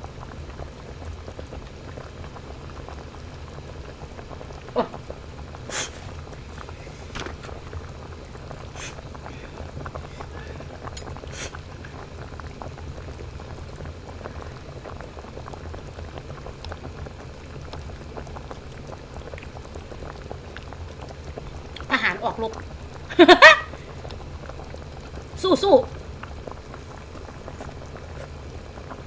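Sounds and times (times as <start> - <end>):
broth bubbling in pot: 0.0 - 29.0.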